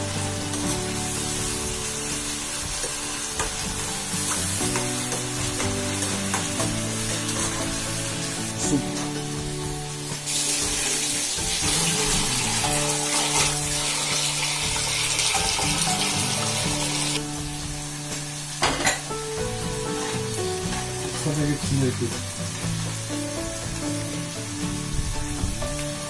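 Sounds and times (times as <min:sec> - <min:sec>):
pan of tomatoes sizzling: 0:00.0 - 0:26.0
tap water running into metal pot: 0:10.2 - 0:17.2.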